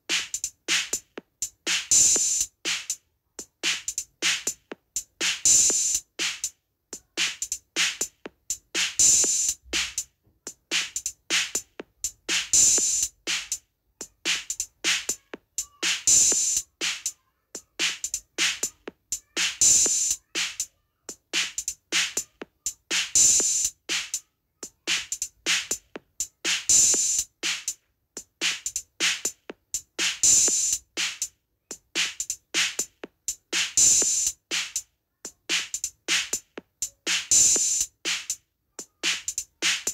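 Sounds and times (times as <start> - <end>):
drum beat: 0.0 - 39.9.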